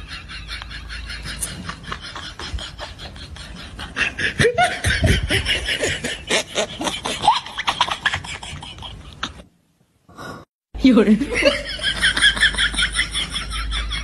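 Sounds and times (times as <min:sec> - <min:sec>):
person laughing: 0:00.0 - 0:09.5.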